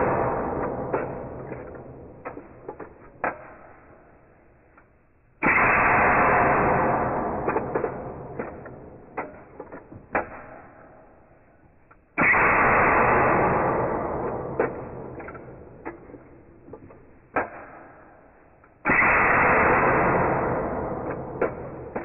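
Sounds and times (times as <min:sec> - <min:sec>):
air rifle shot: 0:05.4 - 0:09.5, 0:12.2 - 0:16.2, 0:18.8 - 0:22.0.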